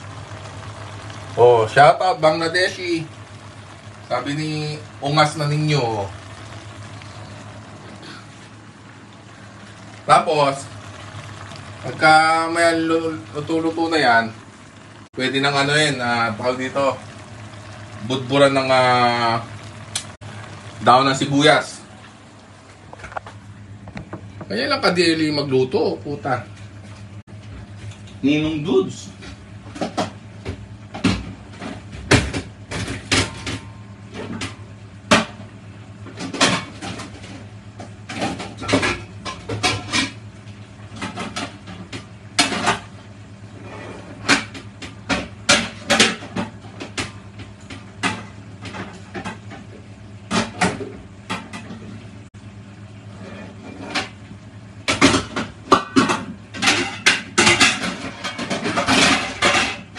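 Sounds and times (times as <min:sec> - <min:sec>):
low hum: 0:00.0 - 0:28.2.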